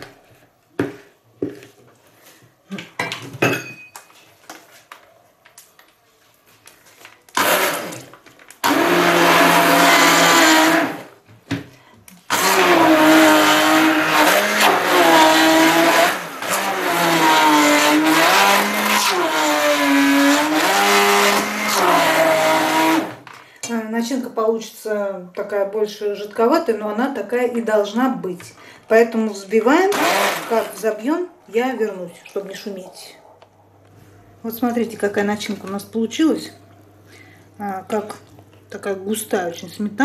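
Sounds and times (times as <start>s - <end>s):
immersion blender motor: 7.4s - 11.1s, 12.3s - 23.2s, 29.9s - 30.8s.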